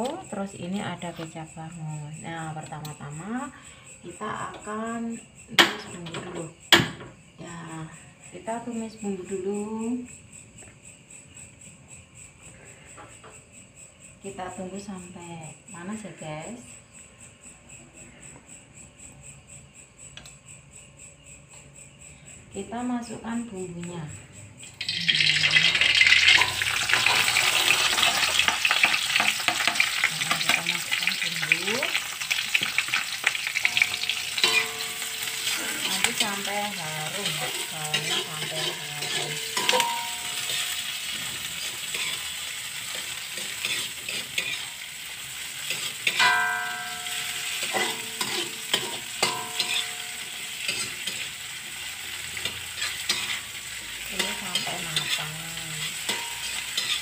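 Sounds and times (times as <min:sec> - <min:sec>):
food sizzling in hot oil: 0:24.7 - 0:57.0
spatula scraping a wok: 0:24.8 - 0:31.2, 0:32.0 - 0:57.0.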